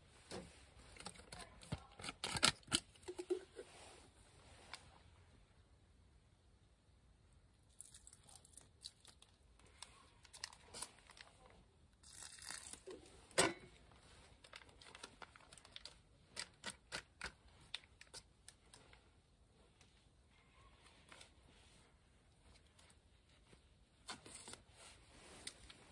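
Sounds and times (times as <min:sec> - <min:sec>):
hands crinkling and tearing packaging: 0:00.9 - 0:03.4, 0:07.7 - 0:13.2, 0:14.1 - 0:19.0, 0:22.5 - 0:25.9.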